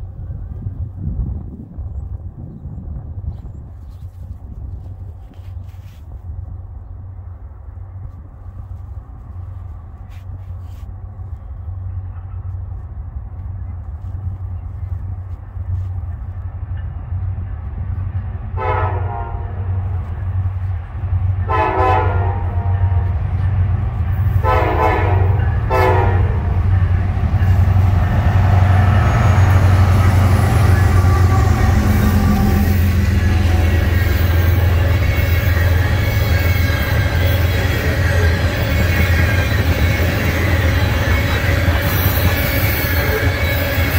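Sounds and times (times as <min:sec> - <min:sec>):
freight train rumbling: 0:00.0 - 0:43.9
locomotive horn blasts: 0:18.6 - 0:19.7, 0:21.4 - 0:23.2, 0:24.4 - 0:26.6, 0:28.0 - 0:43.9.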